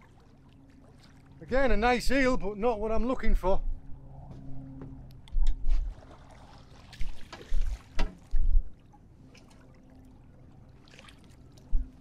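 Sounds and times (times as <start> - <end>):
water lapping: 0.0 - 2.0, 5.7 - 12.0.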